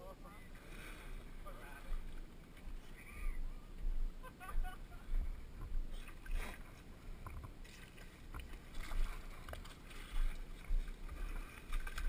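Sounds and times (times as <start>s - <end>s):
low microphone rumbles: 0.4s - 7.6s
boots splashing through mud: 7.6s - 12.0s.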